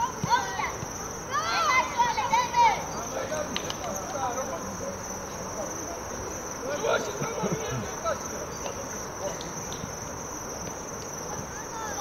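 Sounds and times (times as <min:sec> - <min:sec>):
distant people shouting: 0:00.0 - 0:03.5
crickets trilling: 0:00.0 - 0:12.0.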